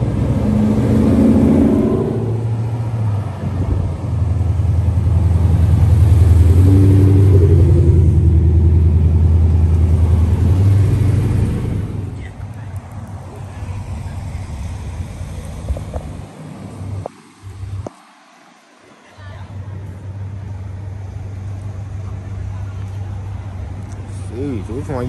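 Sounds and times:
car exhausts rumbling deeply: 0:00.0 - 0:17.1.

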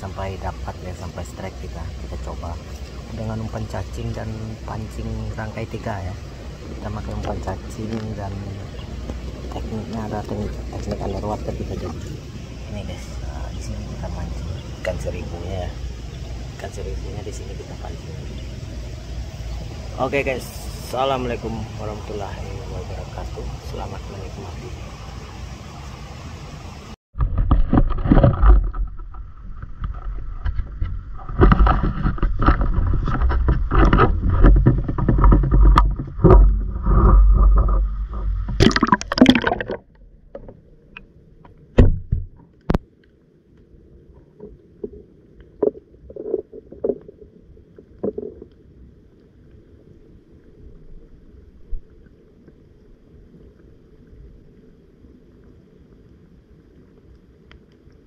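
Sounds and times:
water sloshing around camera: 0:00.0 - 0:21.8, 0:27.2 - 0:58.0
muffled underwater hush: 0:00.0 - 0:27.0.

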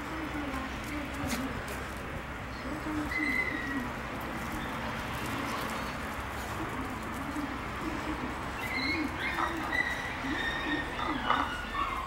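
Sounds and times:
pigeon cooing: 0:02.8 - 0:12.0.

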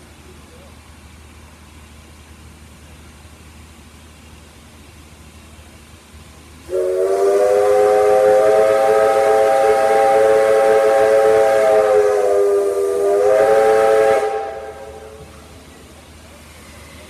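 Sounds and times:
steam locomotive whistle: 0:06.7 - 0:15.6.

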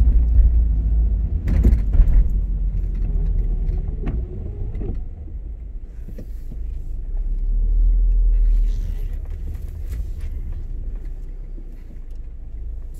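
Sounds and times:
car rumble from inside cabin: 0:00.0 - 0:12.9.

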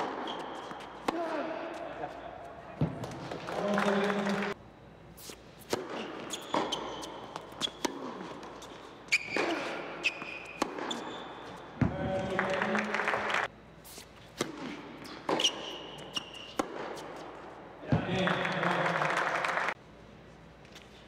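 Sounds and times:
shoe squeaks: 0:00.0 - 0:01.0, 0:05.2 - 0:11.7, 0:15.0 - 0:17.3
tennis ball bouncing on hard court: 0:05.6 - 0:12.7, 0:14.4 - 0:17.3.

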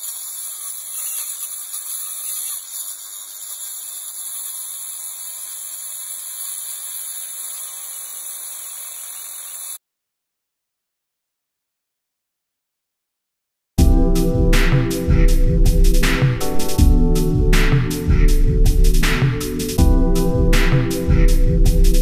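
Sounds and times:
angle grinder cutting metal: 0:00.0 - 0:09.8.

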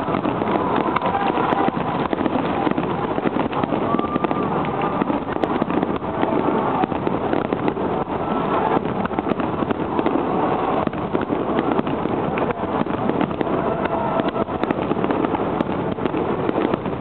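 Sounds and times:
firework shells booming and crackling: 0:00.0 - 0:17.0.

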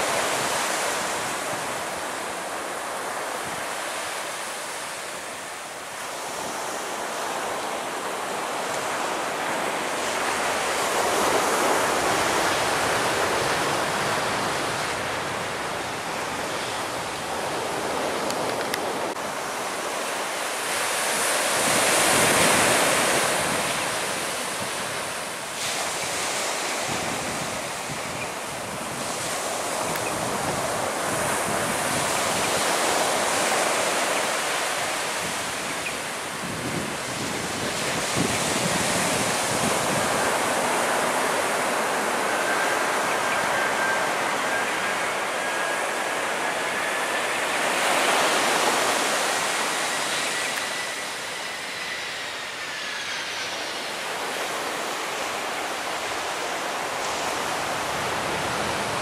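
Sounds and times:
wind buffeting microphone: 0:20.7 - 0:34.1, 0:34.7 - 0:59.0.

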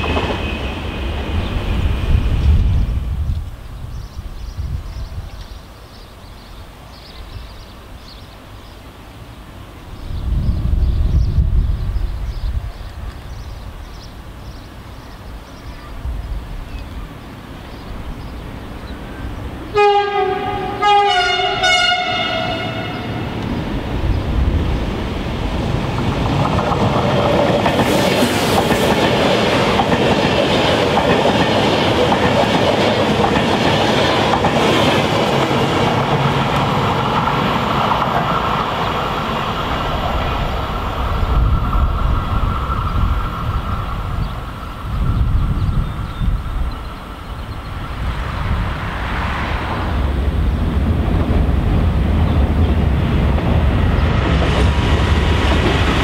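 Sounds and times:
train passing wheel and air rush: 0:00.0 - 0:05.9, 0:06.6 - 0:56.0
train horn blasts: 0:19.7 - 0:23.3.

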